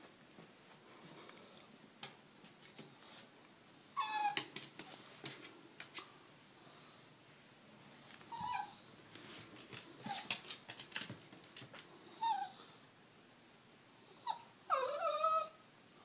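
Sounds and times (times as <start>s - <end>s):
dog whining: 3.8s - 4.5s, 8.2s - 9.0s, 12.0s - 12.8s, 14.0s - 15.6s
sharp clicks and scuffles: 9.1s - 11.9s.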